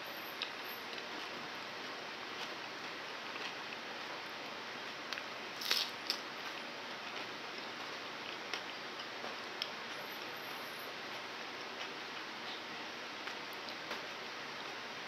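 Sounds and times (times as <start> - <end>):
banana crunching: 5.1 - 9.7.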